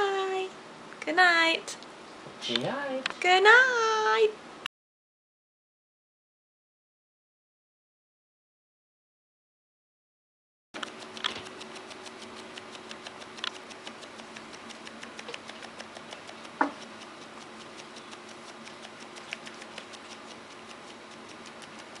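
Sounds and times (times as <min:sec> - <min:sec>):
dog scratching its neck: 0:10.8 - 0:22.0.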